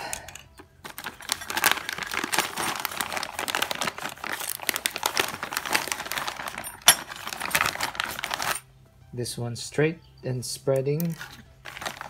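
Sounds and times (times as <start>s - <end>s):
plastic bags crinkling: 0.7s - 8.7s, 11.0s - 12.0s.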